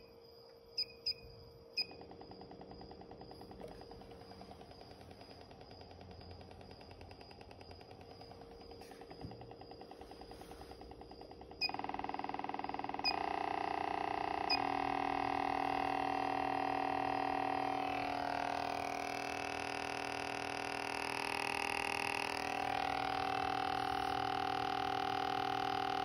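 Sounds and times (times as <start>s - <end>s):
coil buzzing tone: 0.0s - 26.0s.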